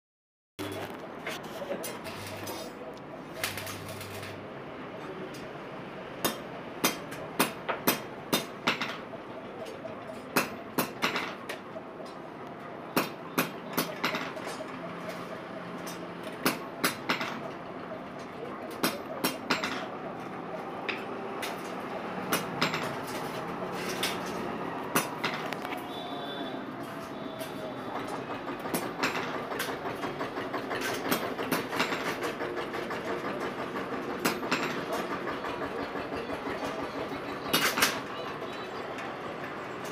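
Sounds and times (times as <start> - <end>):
arc welding crackle and pops: 3.4 - 4.4
hammer striking metal frame: 6.2 - 9.0, 10.3 - 11.6, 12.9 - 14.7, 15.8 - 17.5, 18.7 - 19.9, 20.9 - 25.6, 27.0 - 35.8.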